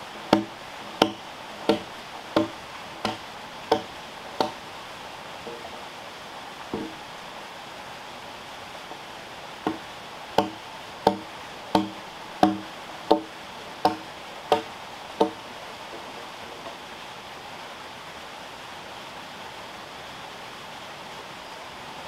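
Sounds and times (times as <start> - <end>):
hand tool knocking on wood: 0.3 - 4.6, 6.8 - 7.0, 10.4 - 15.4.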